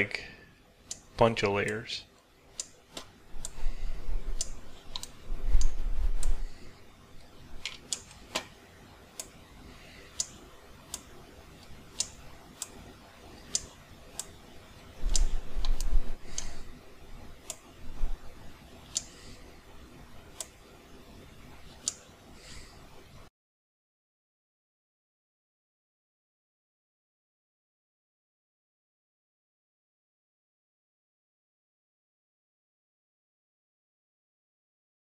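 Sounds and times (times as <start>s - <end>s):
computer clicks: 4.4s - 6.5s, 10.1s - 12.8s, 13.4s - 14.4s, 15.0s - 16.7s, 18.9s - 19.3s, 21.8s - 22.1s.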